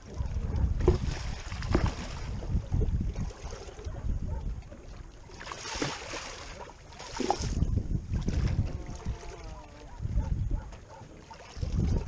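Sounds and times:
wind buffeting microphone: 0.0 - 5.3, 5.9 - 12.0
water sloshing against boat: 0.0 - 12.0
splashy water washes: 0.8 - 2.6, 5.2 - 9.9.

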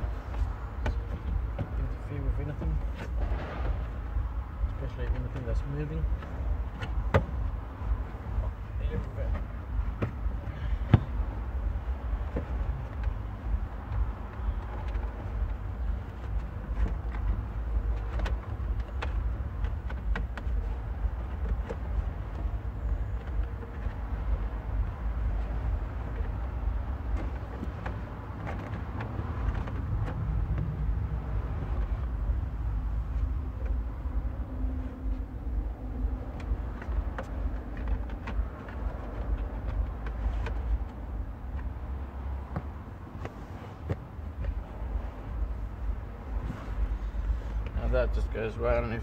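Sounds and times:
steady low rumble: 0.0 - 49.0.

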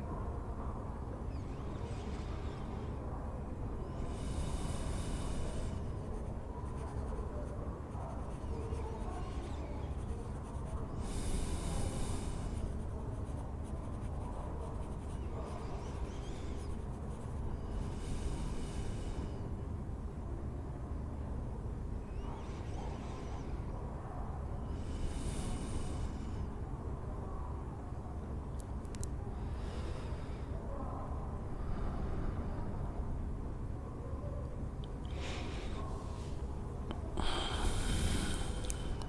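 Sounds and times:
low room rumble: 0.0 - 39.0
pen nib scratching paper: 4.2 - 17.5.

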